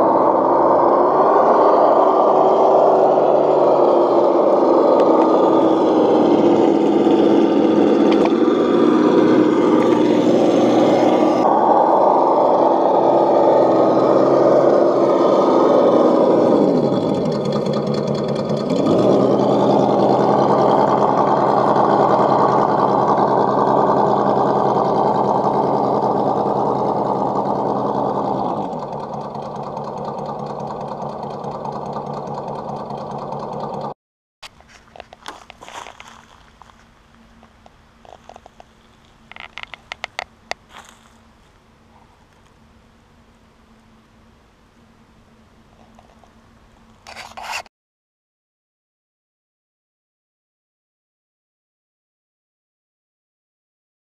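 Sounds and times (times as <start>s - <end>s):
electric motor whining: 0.0s - 33.9s.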